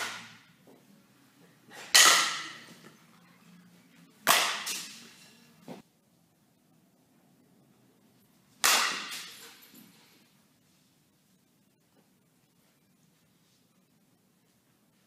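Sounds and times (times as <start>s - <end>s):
bat cracking softball: 0.0s - 0.4s, 1.8s - 2.8s, 4.2s - 5.1s, 8.6s - 9.4s.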